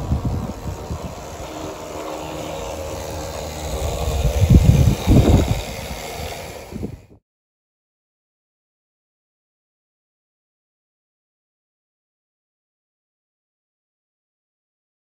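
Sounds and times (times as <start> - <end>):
model train rumbling on track: 0.0 - 7.2.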